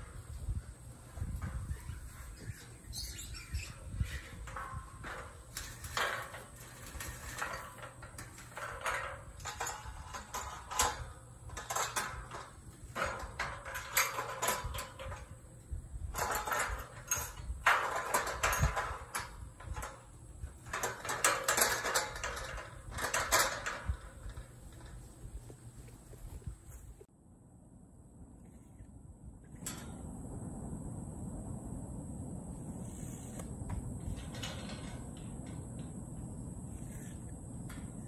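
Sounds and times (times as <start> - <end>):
steel panels clanking and rattling: 0.0 - 26.4, 33.6 - 36.2
metallic knocks and scrapes: 0.0 - 27.1, 32.7 - 38.0.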